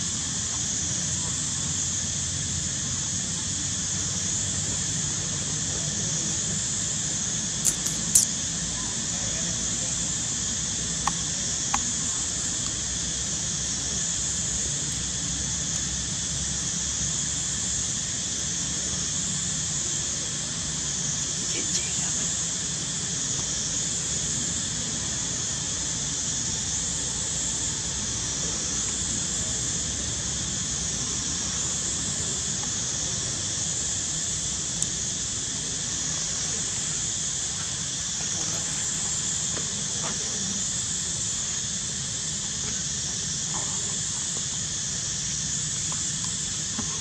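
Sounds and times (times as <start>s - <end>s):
cicadas buzzing: 0.0s - 47.0s
brief click: 7.7s - 8.3s.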